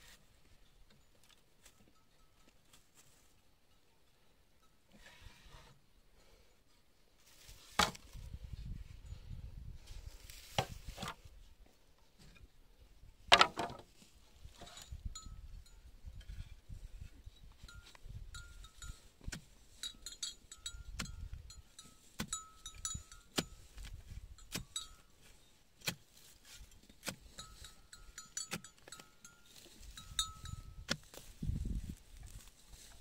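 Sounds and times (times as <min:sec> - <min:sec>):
wind rumble on microphone: 0:08.0 - 0:11.4, 0:14.4 - 0:19.0, 0:29.9 - 0:33.0
cowbells clanking: 0:17.4 - 0:23.7, 0:24.4 - 0:25.1, 0:26.7 - 0:30.9.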